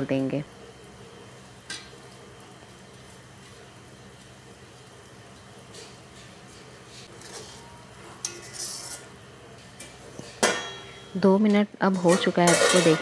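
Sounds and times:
metal spatula scraping pan: 7.1 - 9.1, 11.8 - 13.0.

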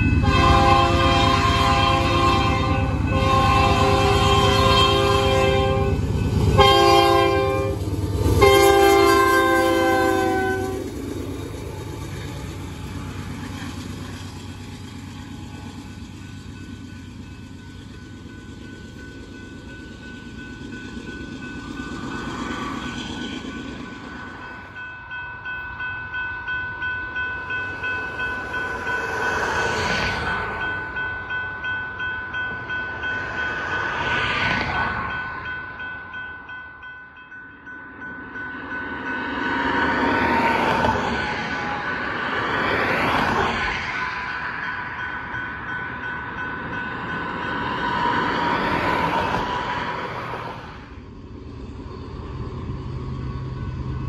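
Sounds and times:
locomotives rumbling past: 0.0 - 36.1
crossing signal bell dinging: 11.7 - 34.4, 35.0 - 49.6
road vehicles passing: 32.5 - 35.6, 39.2 - 54.0.

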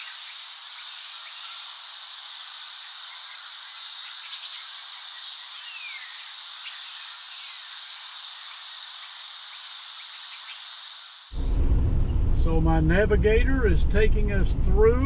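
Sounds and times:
chorus of small calling animals: 0.0 - 11.3.

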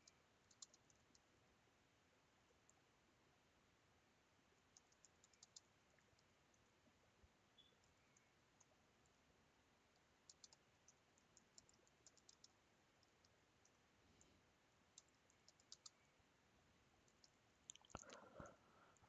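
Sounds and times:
computer keyboard typing: 0.0 - 1.3, 4.7 - 6.3, 9.9 - 13.8, 15.0 - 16.0.

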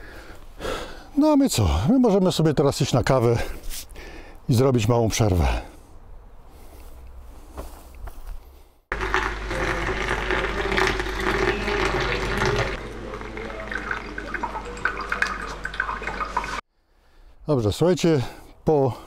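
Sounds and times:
coffee machine hum: 8.9 - 16.6
liquid pouring into cup: 8.9 - 16.6.

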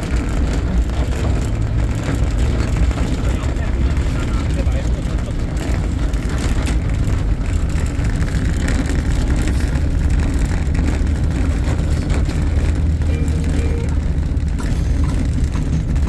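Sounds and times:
road train engine and wheels rumbling: 0.0 - 16.0.

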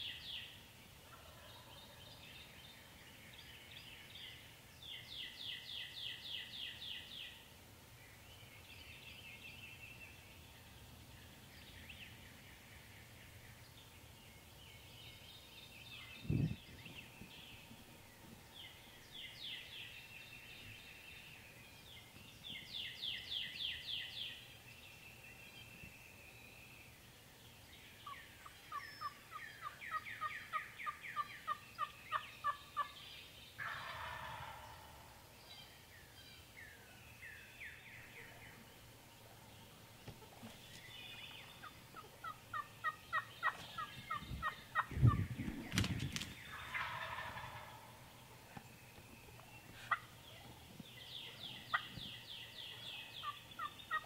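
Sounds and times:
turkey gobble: 1.0 - 1.7, 33.6 - 35.0, 41.6 - 45.7, 46.4 - 48.2, 49.8 - 50.1, 53.2 - 54.0
turkey yelps: 46.5 - 47.8.

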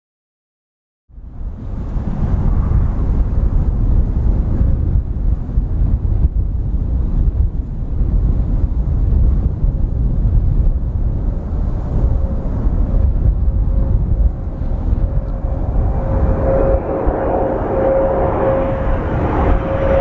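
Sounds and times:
wind buffeting microphone: 1.1 - 20.0
jet engine rumble: 1.2 - 20.0
faint steady whine: 10.6 - 20.0.

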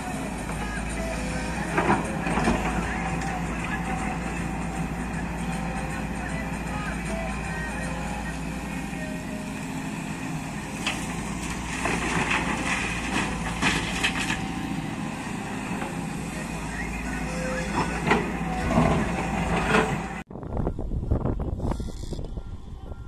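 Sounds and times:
excavator diesel engine running: 0.0 - 23.0
bucket clanking and scraping rock: 10.8 - 14.5.

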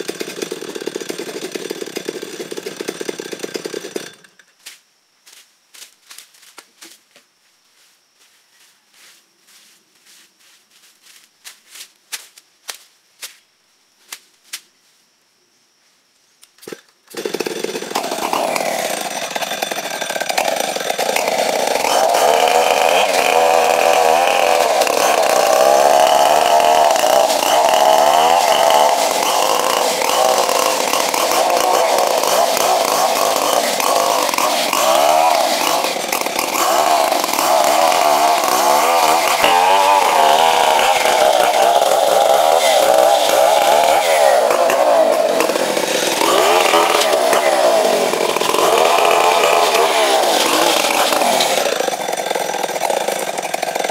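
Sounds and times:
chainsaw cutting wood: 0.0 - 4.5, 16.6 - 53.9.

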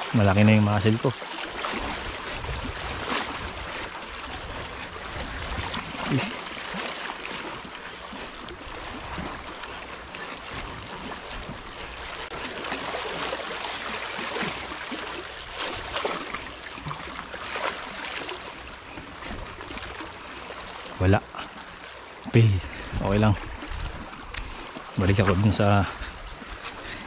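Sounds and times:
sea water splashing: 0.0 - 27.0
wind on microphone: 1.7 - 6.3, 22.5 - 27.0.

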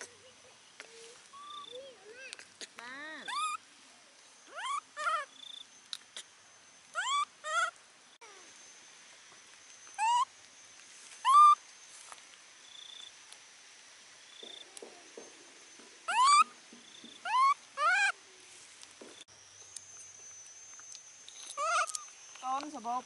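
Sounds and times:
baby monkey squeaky calls: 1.3 - 3.6, 4.5 - 5.3, 6.9 - 8.4, 10.0 - 10.3, 11.2 - 11.6, 16.1 - 16.6, 17.2 - 18.2, 21.4 - 22.6
faint steady high tone: 8.2 - 13.3.

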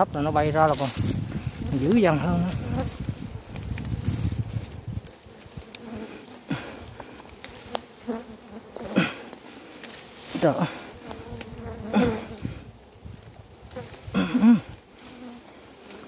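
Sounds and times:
bees buzzing: 1.3 - 3.6, 5.1 - 12.9
bee buzzing past: 2.0 - 3.5, 5.2 - 9.4, 10.6 - 12.6, 13.7 - 16.0.

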